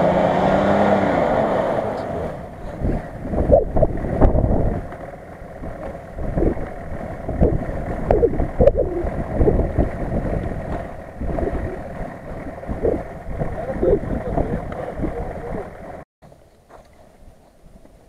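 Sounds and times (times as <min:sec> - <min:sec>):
wind buffeting microphone: 0:02.4 - 0:16.0.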